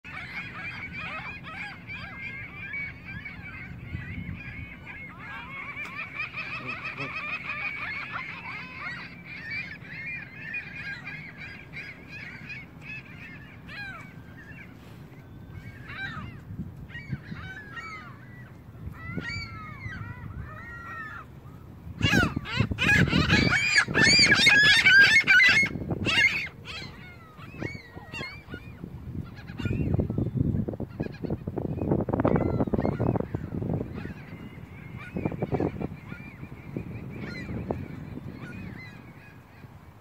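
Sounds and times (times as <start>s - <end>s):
geese honking: 4.2s - 13.4s.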